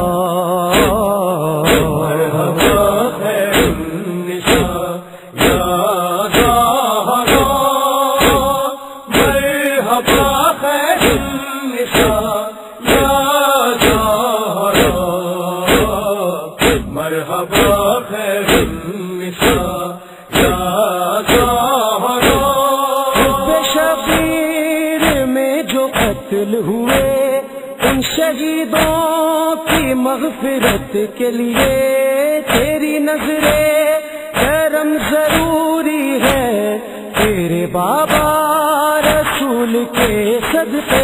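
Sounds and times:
steady chest-beating rhythm: 0.0 - 41.0.

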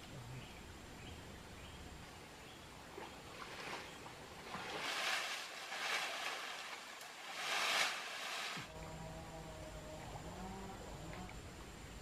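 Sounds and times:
hands splashing in stream water: 3.3 - 8.7.

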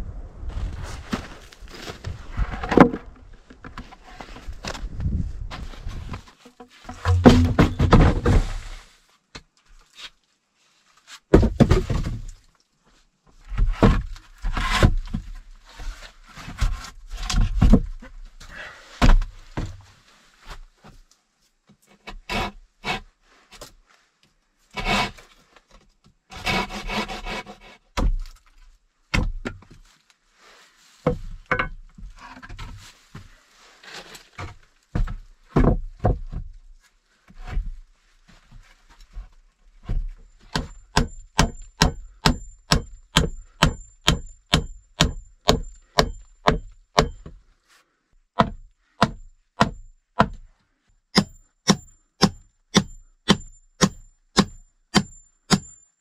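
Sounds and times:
scraping: 0.6 - 8.9
wooden knocks and thuds: 2.4 - 5.2, 6.8 - 8.6, 11.3 - 12.4, 13.5 - 15.4, 16.5 - 18.0, 29.1 - 29.8, 31.1 - 32.8, 34.4 - 36.6.

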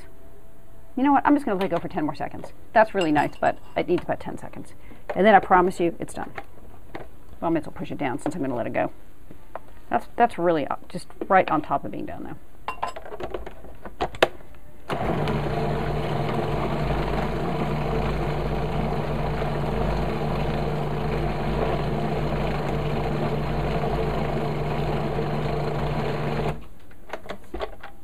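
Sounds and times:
food processor motor running: 14.9 - 26.6.

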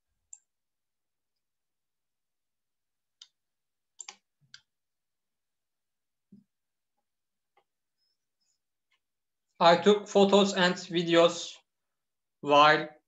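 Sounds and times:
computer mouse clicks: 4.0 - 4.7.

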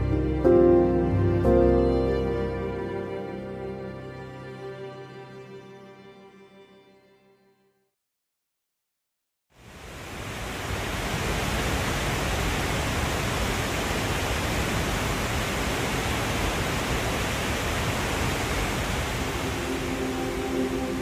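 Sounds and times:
waterfall rushing: 9.6 - 21.0
faint music: 19.3 - 21.0.

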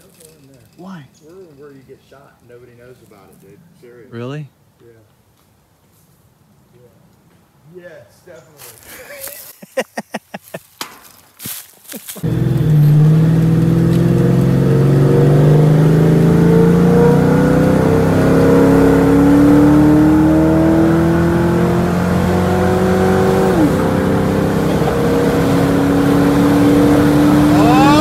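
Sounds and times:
road noise: 0.0 - 28.0
car engine: 12.2 - 28.0.

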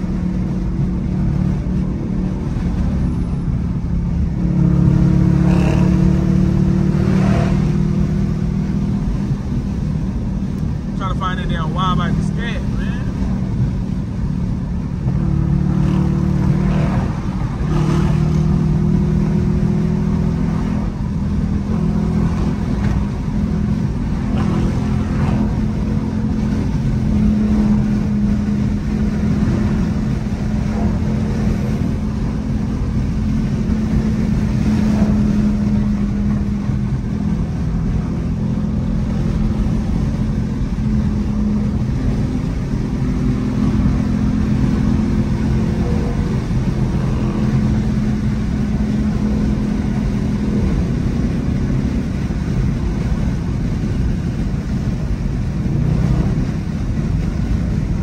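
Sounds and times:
car engine and road noise: 0.0 - 58.0.

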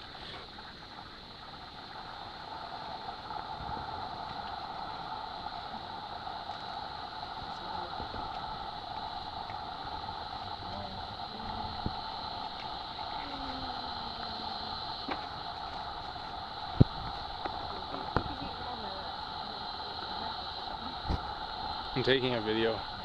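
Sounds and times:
insect chorus drone: 0.0 - 23.0.

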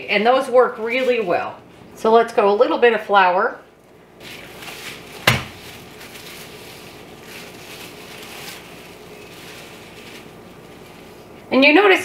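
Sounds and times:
plastic wrap crinkling: 4.2 - 12.0.

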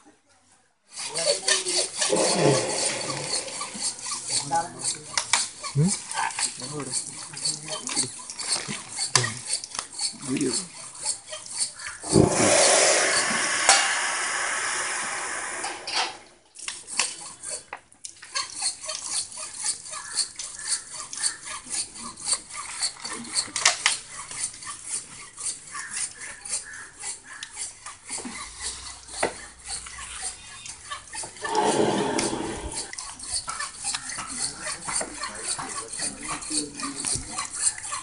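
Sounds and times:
hand saw rasping through tusk: 0.9 - 15.9, 16.6 - 38.0
loud even rushing noise: 12.1 - 15.1, 31.4 - 32.9.

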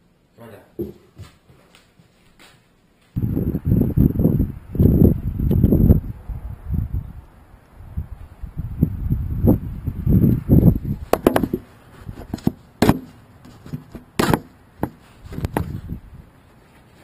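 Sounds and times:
sharp clicks and knocks: 11.1 - 11.6.

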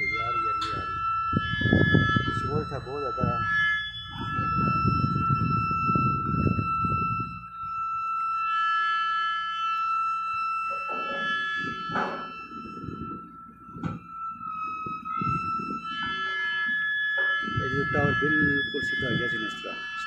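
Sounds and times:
low rumbling noise: 0.0 - 8.2, 10.0 - 20.0
mast extending high-pitched screech: 0.0 - 20.0
sharp knocks: 10.7 - 12.4.

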